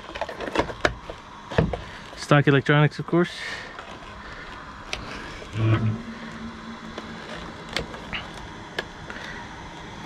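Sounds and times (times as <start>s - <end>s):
outdoor hiss: 1.1s - 5.5s
faint steady tone: 3.4s - 10.0s
brief low hum: 5.3s - 8.8s.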